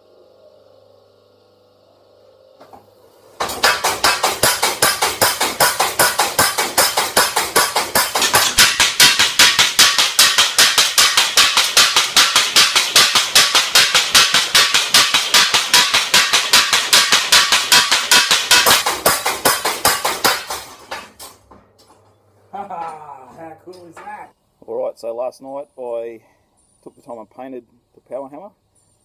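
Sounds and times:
power hammer blows: 3.4 - 21.5.

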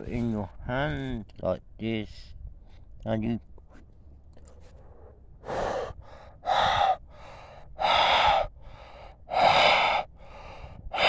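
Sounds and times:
soft in-breaths: 4.4 - 11.0
man blowing breath into hands: 4.8 - 11.0.

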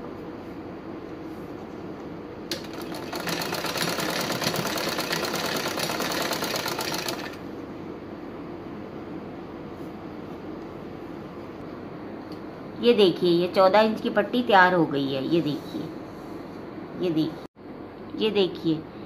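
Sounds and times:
sewing machine stitching: 2.5 - 7.4.

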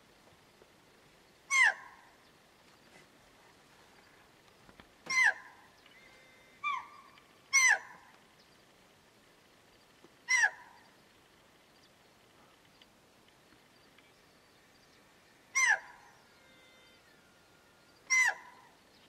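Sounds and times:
deer alarm bark: 6.6 - 8.0, 18.1 - 18.7.

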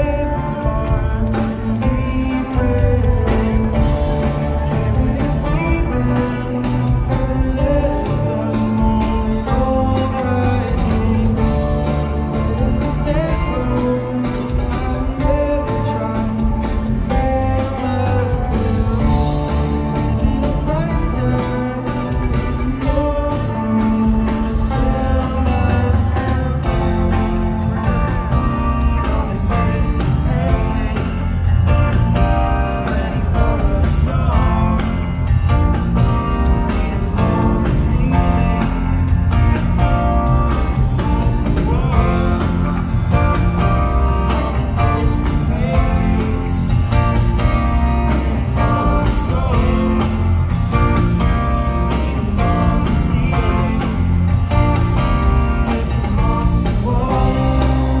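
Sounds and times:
bass guitar: 0.0 - 58.0
drums: 0.0 - 58.0
electric guitar: 0.0 - 58.0
person singing: 0.0 - 58.0.

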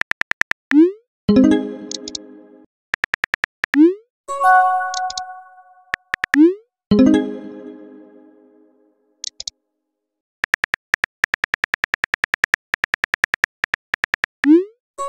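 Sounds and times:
phone keyboard typing clicks: 1.9 - 2.2, 3.0 - 3.8, 4.8 - 6.4, 9.2 - 9.5, 10.4 - 14.6.

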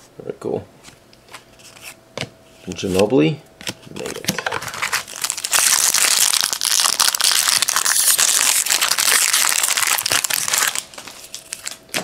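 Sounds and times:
foil wrapper crinkling and tearing: 4.0 - 11.8.

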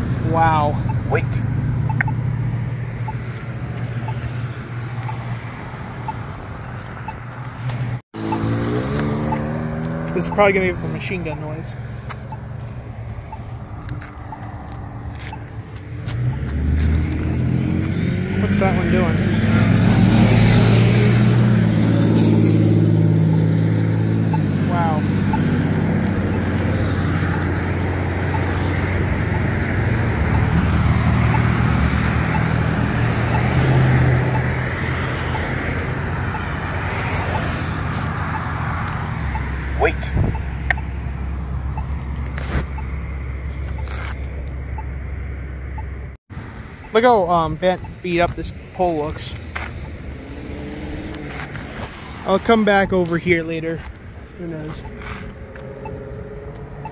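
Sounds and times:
road traffic noise: 0.0 - 56.9
faint ticking locator tone: 0.2 - 2.3, 3.0 - 3.4, 4.0 - 6.4, 8.2 - 16.5, 21.6 - 42.0, 42.7 - 46.2, 46.8 - 48.6, 54.4 - 56.9.

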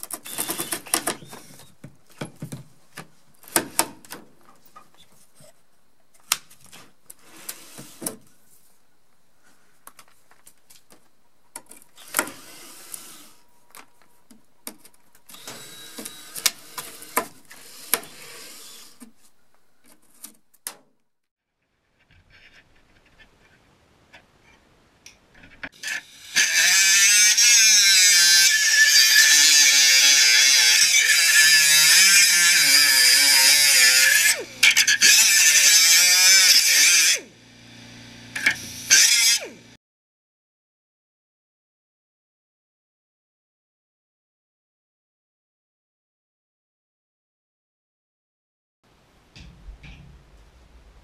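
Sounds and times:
power drill boring metal: 15.3 - 19.0, 25.8 - 39.7
angle grinder cutting steel: 25.7 - 39.7.

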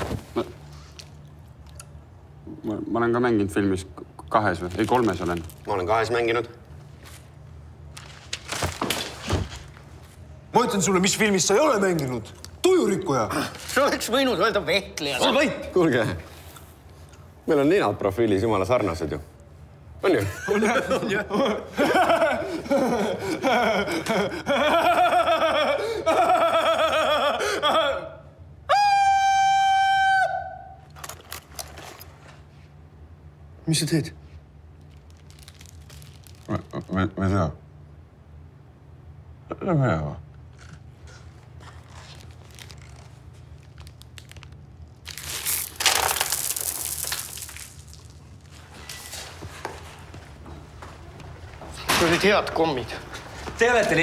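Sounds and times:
men laughing loudly: 20.2 - 28.2
candies rattling in cardboard box: 44.2 - 48.2.

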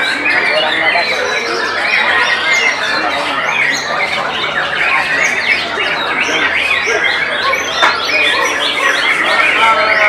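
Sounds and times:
songbirds singing chorus: 0.0 - 10.0.

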